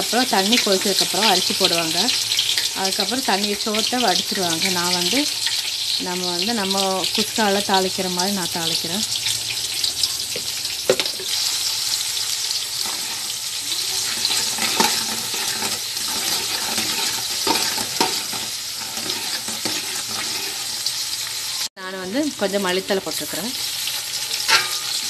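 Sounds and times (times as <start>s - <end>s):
onions sizzling in hot oil: 0.0s - 25.0s
metal ladle scraping pot: 12.8s - 21.0s, 23.9s - 25.0s.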